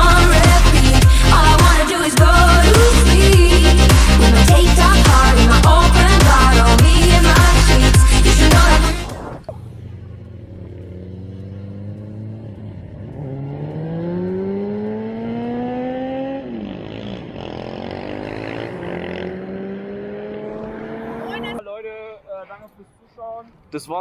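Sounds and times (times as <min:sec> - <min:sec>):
music: 0:00.0 - 0:09.2
car engine accelerating: 0:02.2 - 0:21.6.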